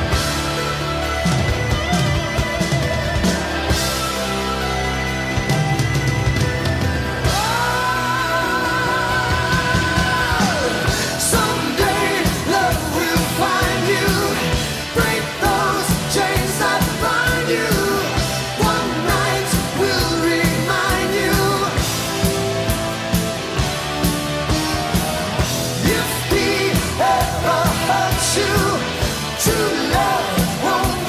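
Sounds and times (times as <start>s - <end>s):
drums with steady beat: 0.0s - 31.0s
person singing: 7.2s - 22.0s, 25.8s - 31.0s.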